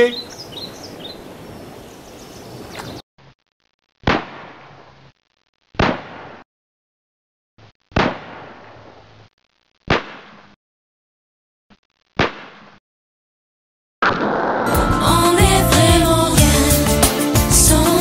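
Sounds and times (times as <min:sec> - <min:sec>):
birds chirping: 0:00.0 - 0:03.0.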